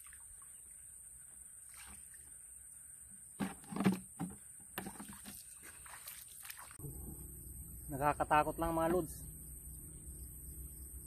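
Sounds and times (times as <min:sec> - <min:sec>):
hands splashing in muddy water: 0:04.8 - 0:06.8
steady high hiss: 0:06.8 - 0:11.0.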